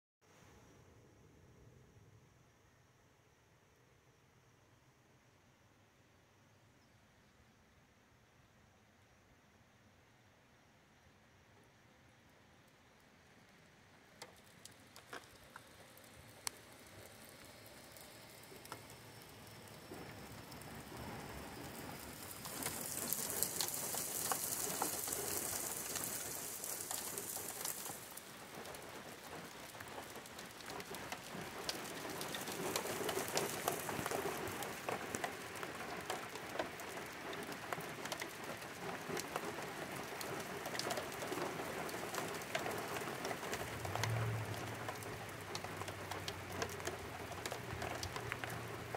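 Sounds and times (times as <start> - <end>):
rain falling on asphalt: 12.0 - 48.9
high hiss: 14.8 - 35.6.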